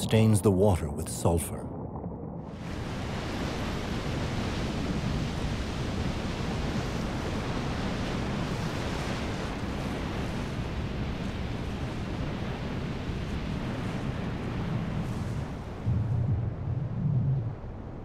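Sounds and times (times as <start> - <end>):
churning sea water rushing: 0.0 - 18.0
low rumble: 14.7 - 18.0.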